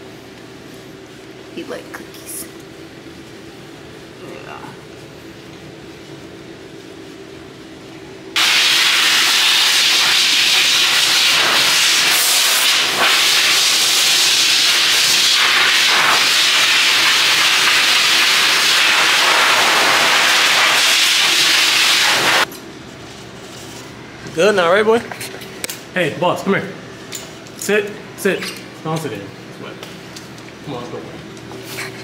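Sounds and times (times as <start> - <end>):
pet dryer blowing air: 8.4 - 22.5.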